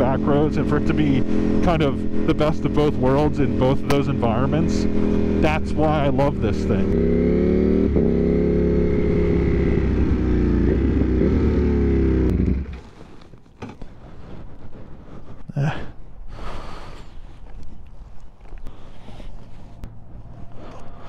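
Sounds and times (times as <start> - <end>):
motorcycle engine running: 0.0 - 13.8, 18.8 - 21.0.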